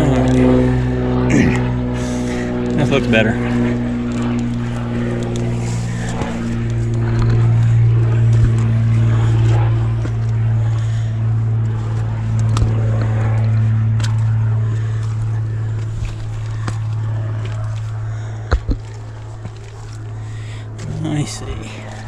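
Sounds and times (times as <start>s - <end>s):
low droning engine-like hum: 0.0s - 22.0s
footsteps on granite: 11.9s - 20.9s
boots knocking against rock: 18.5s - 20.0s.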